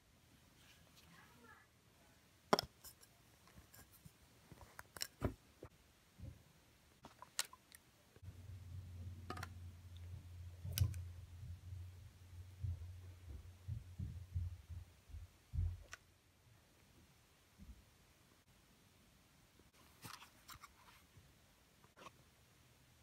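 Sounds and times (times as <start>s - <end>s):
low steady hum: 1.7s - 23.0s.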